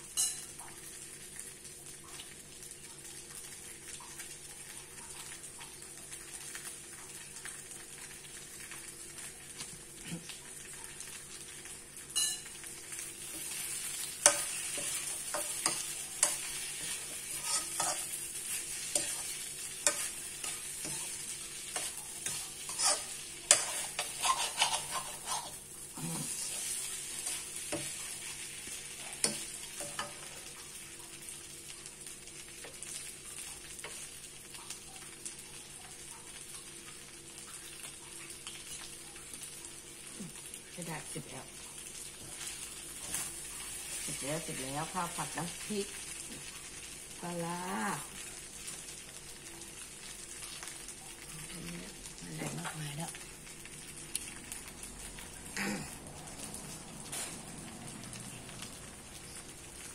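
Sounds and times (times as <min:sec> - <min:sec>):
rice sizzling in a wok: 0:00.0 - 0:59.9
metal ladle scraping a wok: 0:17.3 - 0:18.1, 0:22.6 - 0:25.6.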